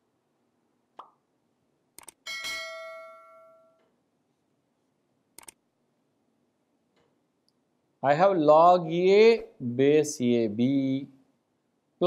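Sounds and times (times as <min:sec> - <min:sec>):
mouse clicks: 0:02.0 - 0:02.2, 0:05.4 - 0:05.6
bright bell ding: 0:02.3 - 0:03.8.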